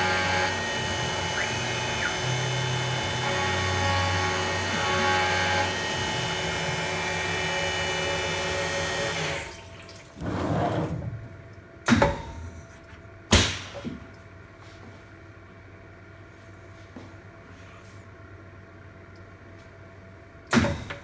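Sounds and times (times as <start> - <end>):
mill spindle milling metal: 0.0 - 9.5.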